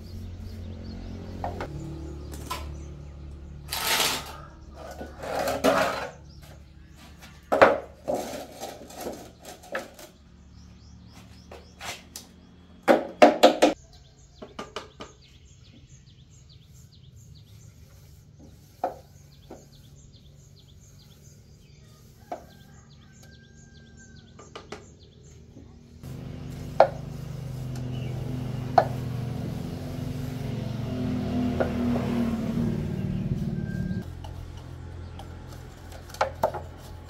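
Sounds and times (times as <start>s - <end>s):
low motor hum: 0.0s - 7.5s, 25.5s - 37.0s
birds chirping faintly: 0.0s - 37.0s.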